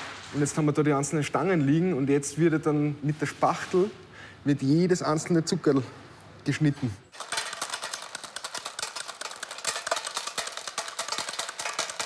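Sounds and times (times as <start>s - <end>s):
metal scraper chopping candy: 7.1s - 12.0s.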